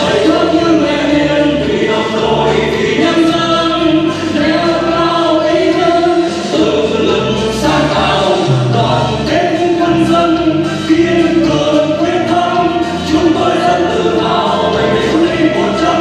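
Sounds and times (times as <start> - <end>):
instrumental accompaniment: 0.0 - 16.0
men and women singing together: 0.0 - 16.0.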